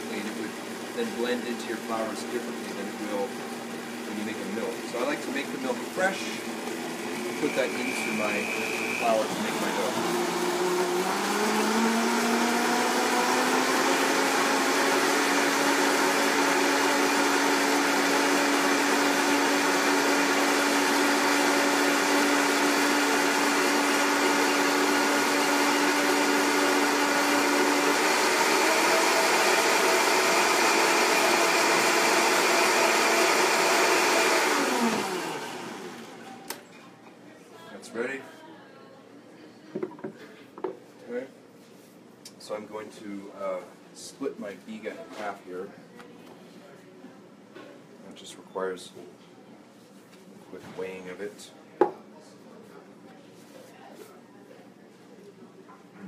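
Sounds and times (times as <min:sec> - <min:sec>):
blender motor whirring: 0:00.0 - 0:36.3.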